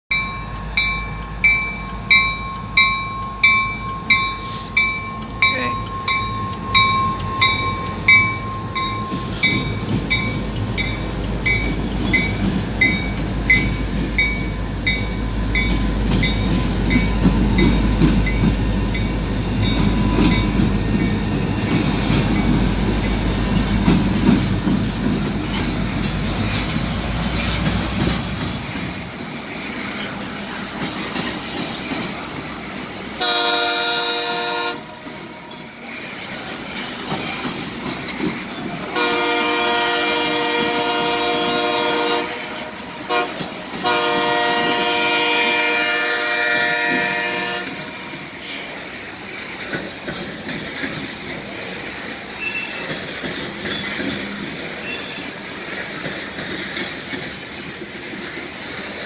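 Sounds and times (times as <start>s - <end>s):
bell ringing: 0.1s - 21.2s
diesel locomotive engines rumbling: 0.1s - 59.0s
wheel clatter on rails: 5.0s - 33.1s, 35.0s - 39.5s, 46.8s - 59.0s
faint high wheel squeal: 52.3s - 54.0s, 54.8s - 55.4s.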